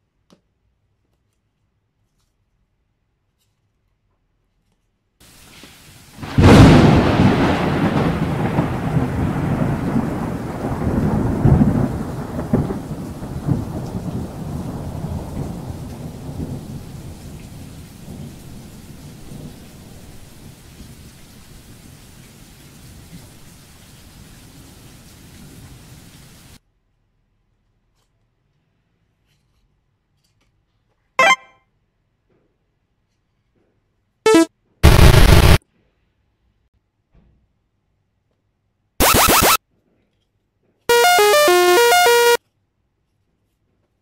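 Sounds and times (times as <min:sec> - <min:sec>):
faint steady hiss: 0:05.2 - 0:06.7, 0:16.2 - 0:26.6
thunder crack and rumble: 0:06.2 - 0:21.1.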